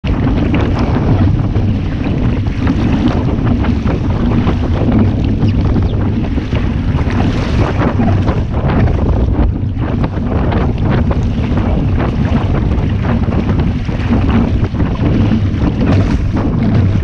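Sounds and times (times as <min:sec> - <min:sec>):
water splashing against hull: 0:00.0 - 0:17.0
wind buffeting microphone: 0:00.0 - 0:17.0.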